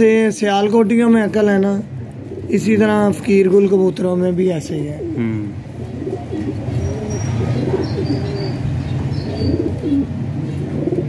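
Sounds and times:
pigeons cooing: 1.8s - 3.5s, 4.5s - 11.0s.

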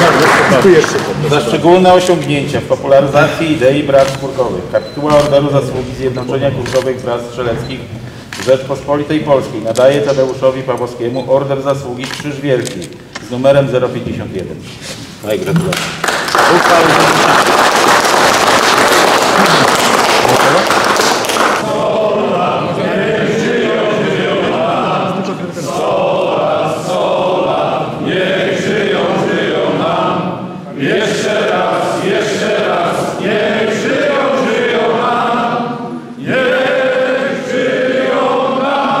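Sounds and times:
men singing unaccompanied: 21.6s - 39.0s.

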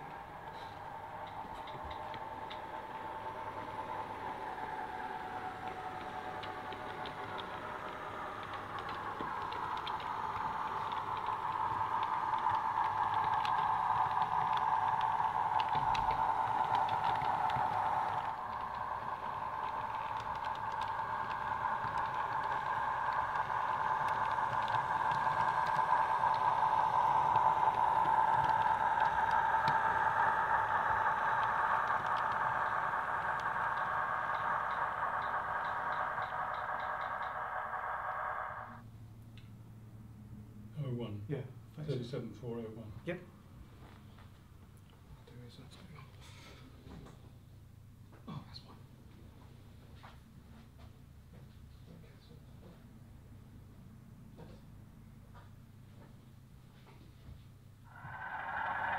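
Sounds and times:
model train whine: 0.0s - 38.8s, 57.8s - 58.9s
wheels ticking over track: 0.0s - 38.8s, 57.9s - 58.9s.

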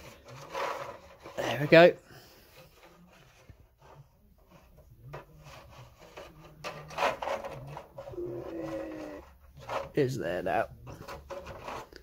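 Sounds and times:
rubbing and scraping: 0.0s - 12.0s.

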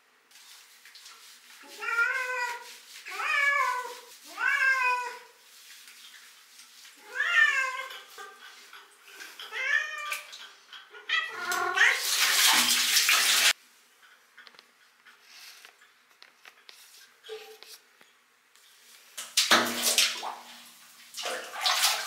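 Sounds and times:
cat meowing: 3.1s - 5.3s
spraying water rushing: 11.8s - 13.6s.

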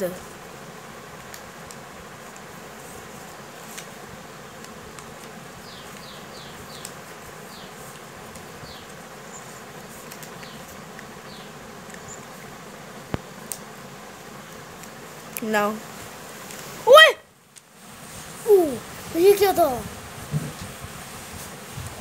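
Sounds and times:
paper rustling: 1.3s - 4.0s, 9.8s - 10.8s.

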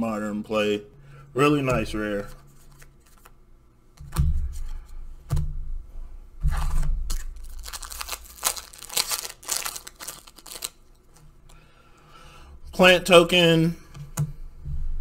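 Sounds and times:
foil wrapper tearing: 7.1s - 11.2s.

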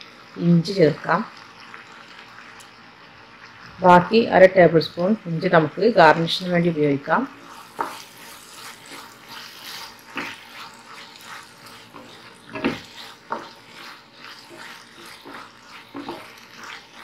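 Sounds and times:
soft sizzle: 0.0s - 17.0s
spatula scraping frying pan: 7.4s - 17.0s.

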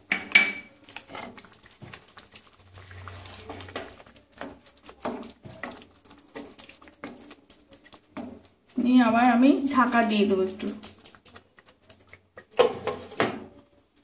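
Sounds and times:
gravy squelching: 0.7s - 14.0s
spatula scraping metal pan: 1.0s - 1.4s, 11.4s - 13.5s.

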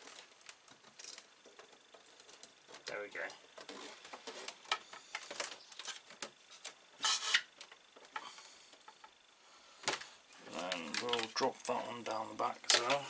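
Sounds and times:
plastic scraping: 0.0s - 8.3s.

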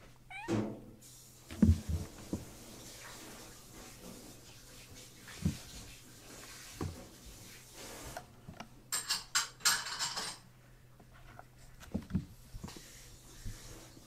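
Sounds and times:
kittens scratching and rustling: 1.2s - 8.6s, 11.0s - 14.0s
soft thumps of paws: 1.5s - 2.6s, 5.3s - 5.9s.

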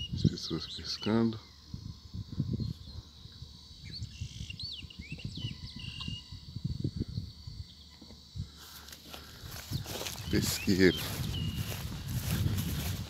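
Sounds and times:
bird chirps and calls: 3.8s - 6.4s, 9.7s - 12.9s.

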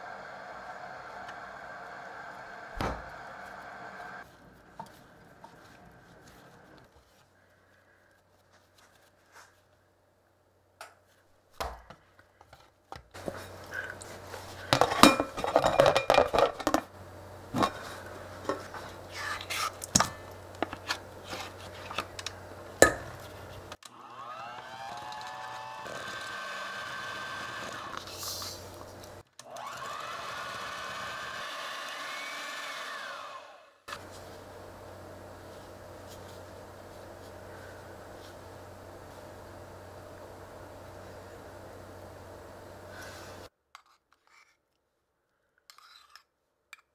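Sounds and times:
electric hand mixer whirring: 0.0s - 4.3s, 23.8s - 43.5s
spatula scraping bowl: 17.6s - 22.3s.

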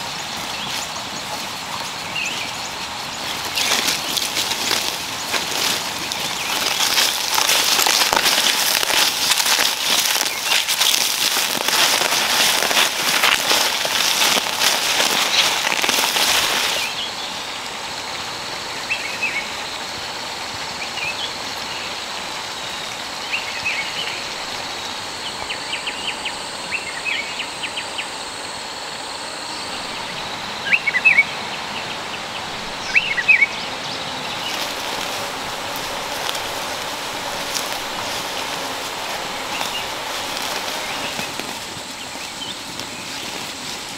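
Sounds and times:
leafy plants rustling and crackling: 0.0s - 43.9s
bird chirps: 29.5s - 35.3s.

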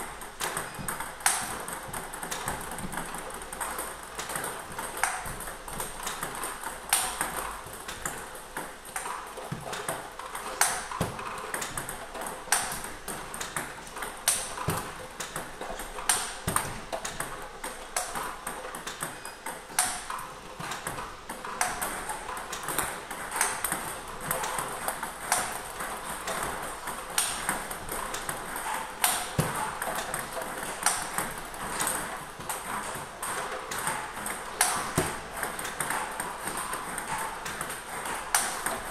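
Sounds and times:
ping pong ball clicks: 0.0s - 38.9s
racket hitting ball: 27.2s - 36.0s.

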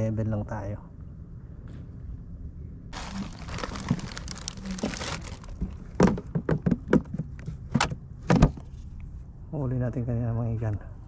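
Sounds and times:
rustling and crinkling: 3.0s - 7.8s.

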